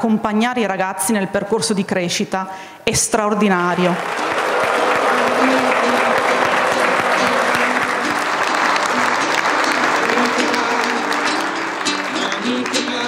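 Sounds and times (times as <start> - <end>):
background music: 3.9 - 13.0
large audience applauding: 3.9 - 13.0.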